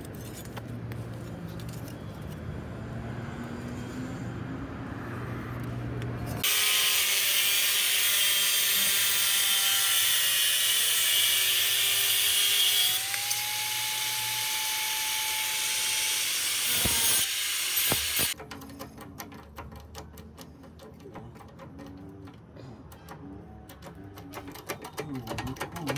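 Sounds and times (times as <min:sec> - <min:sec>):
angle grinder cutting steel: 0:06.4 - 0:18.4.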